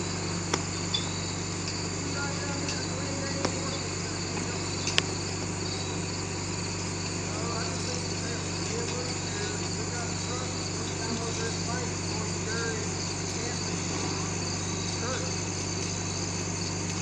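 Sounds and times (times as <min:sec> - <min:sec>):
crickets trilling: 0:00.0 - 0:17.0
engine idling: 0:00.0 - 0:17.0
sharp click: 0:04.4 - 0:05.1.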